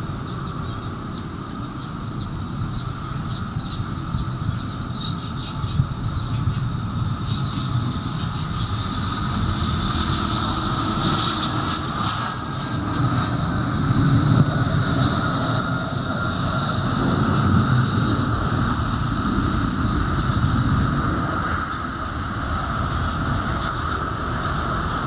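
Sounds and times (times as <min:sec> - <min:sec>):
jet engine whine: 0:00.0 - 0:25.0.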